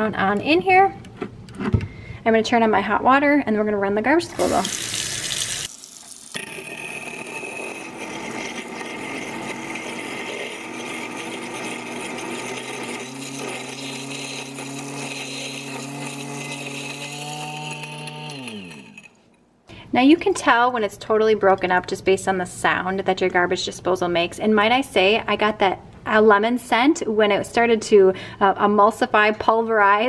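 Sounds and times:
garbage disposal grinding: 0:04.4 - 0:19.3.

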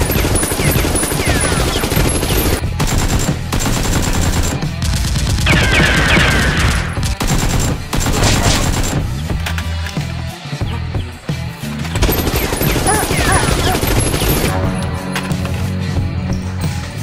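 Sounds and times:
machine gun fire: 0:00.0 - 0:09.1, 0:12.0 - 0:14.6.

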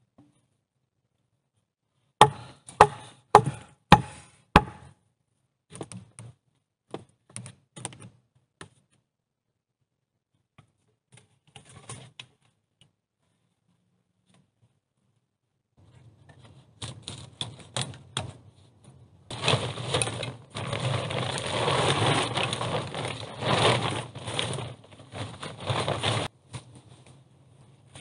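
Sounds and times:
plastic tarpaulin rustling: 0:19.3 - 0:27.2.

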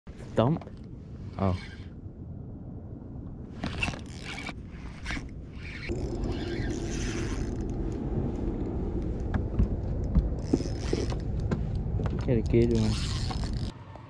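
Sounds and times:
fishing reel whirring: 0:03.8 - 0:07.7, 0:12.8 - 0:13.7.

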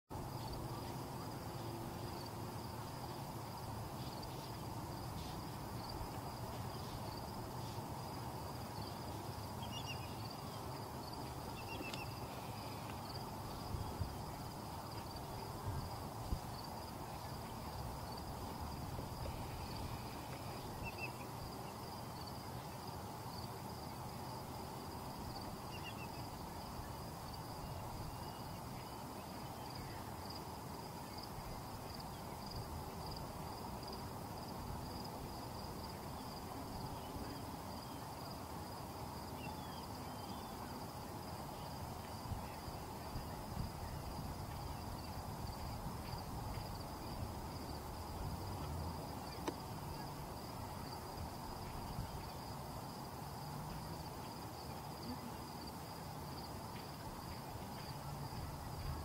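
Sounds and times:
high-pitched hiss: 0:00.1 - 0:59.0
faint chirps: 0:08.7 - 0:18.2, 0:19.2 - 0:23.5.

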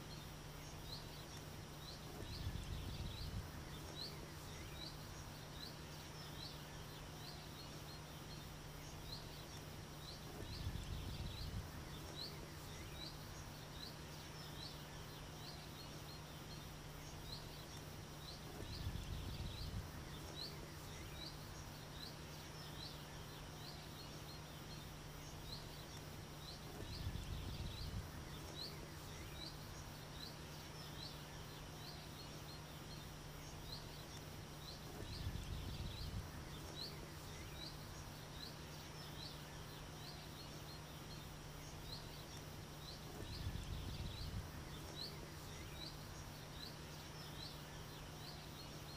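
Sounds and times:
faint steady hum: 0:00.0 - 0:48.9.

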